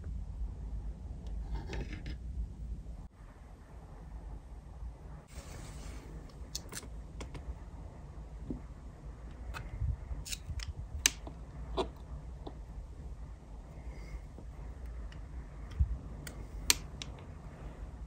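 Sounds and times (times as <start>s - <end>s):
soft rustle: 5.2s - 6.4s.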